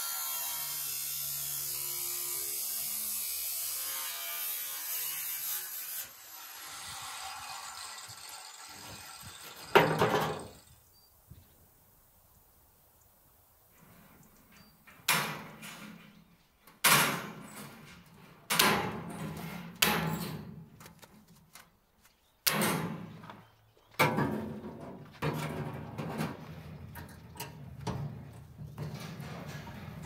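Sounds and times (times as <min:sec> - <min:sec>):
wire mesh clanking and rattling: 0:08.8 - 0:10.6, 0:14.5 - 0:20.7, 0:22.5 - 0:23.2, 0:24.0 - 0:30.0.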